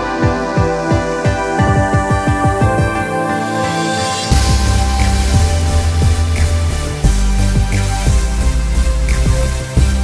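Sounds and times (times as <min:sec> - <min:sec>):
music with steady beat and bass: 0:00.0 - 0:10.0.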